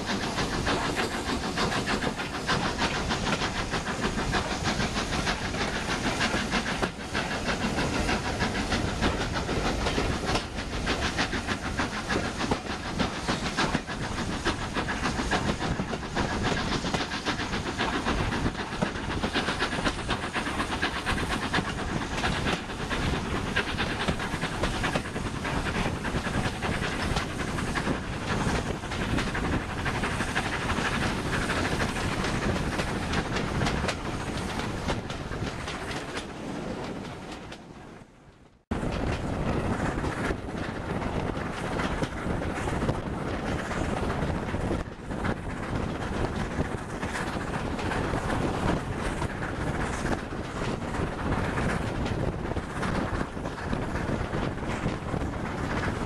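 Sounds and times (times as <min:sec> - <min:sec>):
steam locomotive exhaust beating: 0:00.0 - 0:56.0
train wheels on rails: 0:00.0 - 0:56.0.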